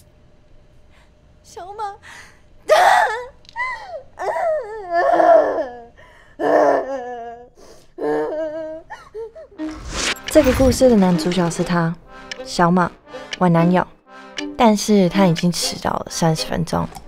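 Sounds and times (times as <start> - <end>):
young woman crying and wailing: 2.7 - 9.6.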